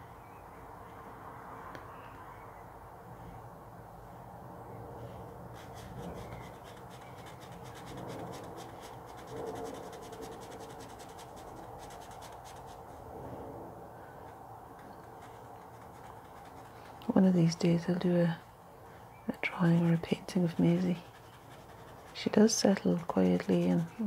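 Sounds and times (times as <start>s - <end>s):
pen scratching on paper: 5.5s - 13.0s, 14.8s - 17.2s, 19.5s - 24.0s.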